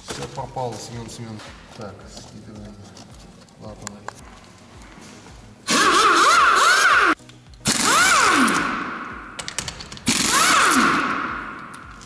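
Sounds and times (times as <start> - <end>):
pneumatic impact wrench hammering: 5.7 - 12.0.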